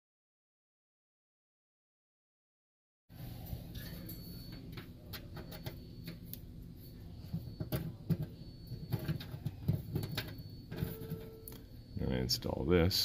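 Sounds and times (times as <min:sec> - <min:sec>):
steady low hum: 0:03.1 - 0:13.0.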